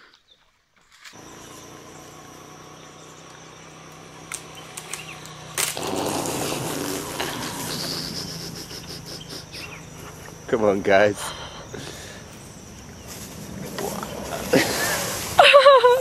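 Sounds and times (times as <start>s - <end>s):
high drone of insects: 1.1s - 16.0s
sharp clicks: 3.2s - 6.0s
loud rustling rush: 13.0s - 16.0s.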